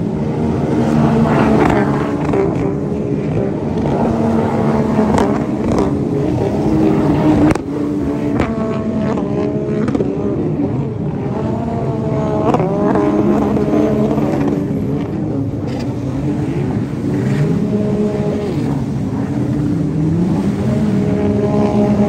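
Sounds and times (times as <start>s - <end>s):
jet ski engines revving: 0.0s - 22.0s.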